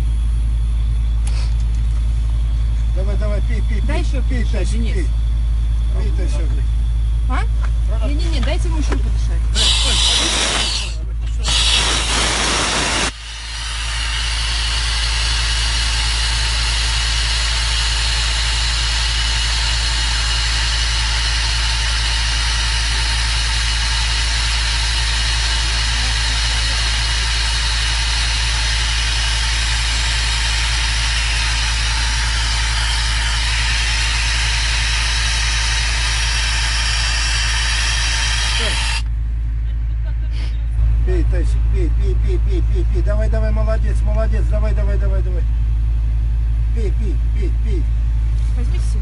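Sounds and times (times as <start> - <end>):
low engine idling: 0.0 - 49.0
oxygen hissing through mask: 9.6 - 39.0.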